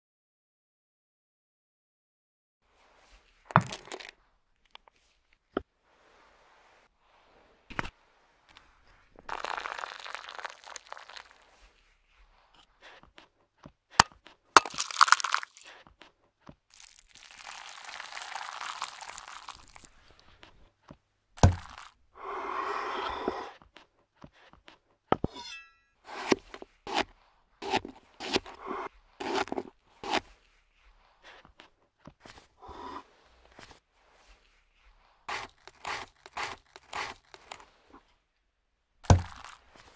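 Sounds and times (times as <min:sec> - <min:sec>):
liquid pouring: 0:09.2 - 0:11.6, 0:14.6 - 0:15.7, 0:16.7 - 0:20.1
knife chopping on wooden board: 0:21.4 - 0:21.8, 0:26.1 - 0:30.2, 0:35.3 - 0:37.4, 0:39.1 - 0:39.5.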